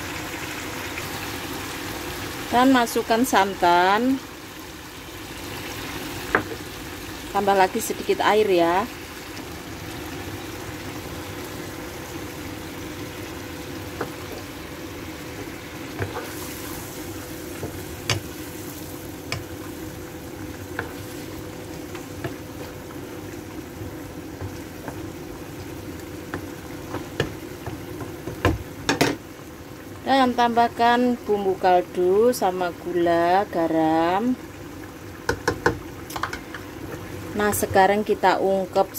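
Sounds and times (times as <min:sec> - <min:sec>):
curry simmering and bubbling: 0:08.9 - 0:30.1, 0:34.4 - 0:37.7
spatula tapping and scraping pan: 0:35.3 - 0:36.6.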